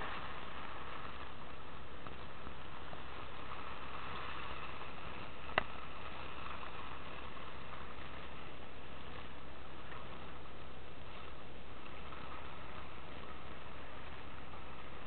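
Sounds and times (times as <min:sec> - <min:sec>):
wind and sea hiss: 0:00.0 - 0:15.0.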